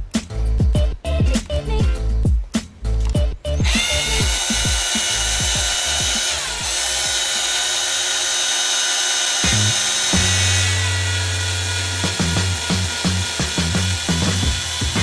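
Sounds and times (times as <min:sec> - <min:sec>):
background music: 0:00.0 - 0:07.2
drill motor whirring: 0:03.5 - 0:15.0.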